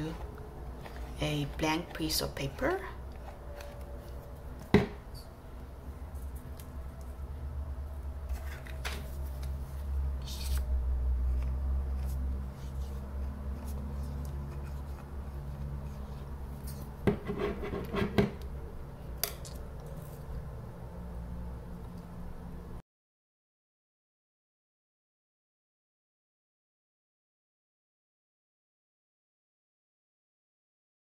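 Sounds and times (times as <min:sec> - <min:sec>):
steady low hum: 0:00.0 - 0:22.8.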